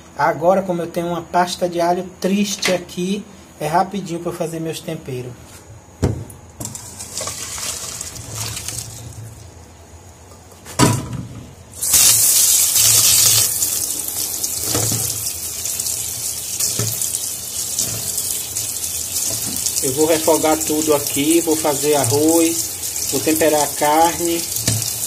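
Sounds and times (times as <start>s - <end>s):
tap water running: 6.6s - 9.4s, 11.8s - 25.0s
water poured into metal colander: 7.0s - 9.1s.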